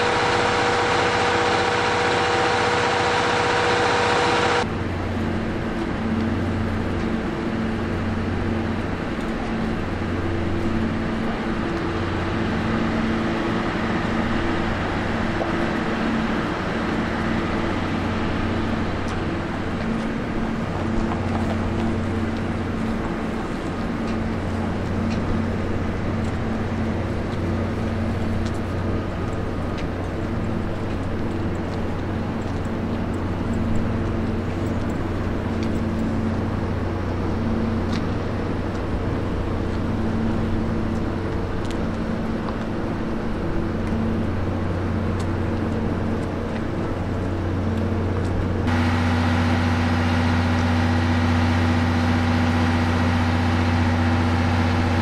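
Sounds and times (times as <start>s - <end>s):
train running drone: 0.0s - 55.0s.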